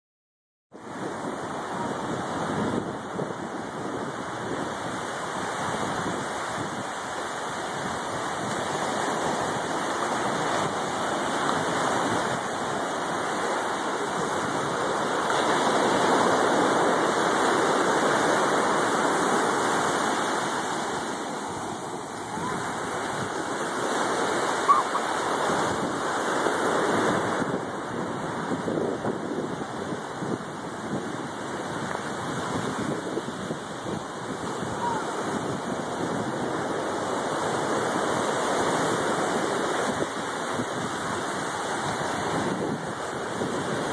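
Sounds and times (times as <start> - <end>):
surf washing on a beach: 0.8 - 43.9.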